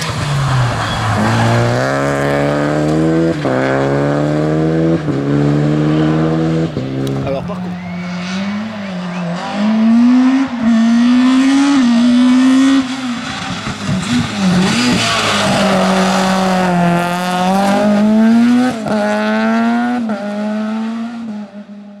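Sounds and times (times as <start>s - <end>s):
tyre squeal: 0.0s - 2.3s
rally car engine at high revs: 0.0s - 22.0s.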